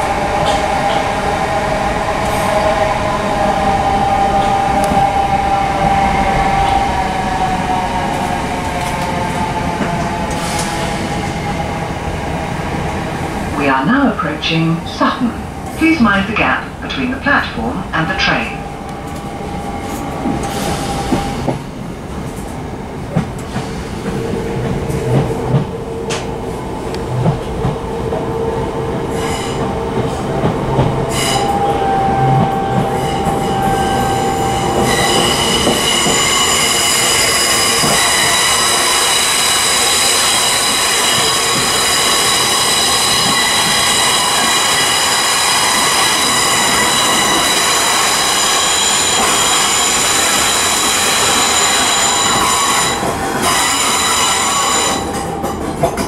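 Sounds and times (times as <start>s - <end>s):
train running noise with whine: 0.0s - 56.0s
train wheels clicking: 18.8s - 28.2s, 29.1s - 56.0s.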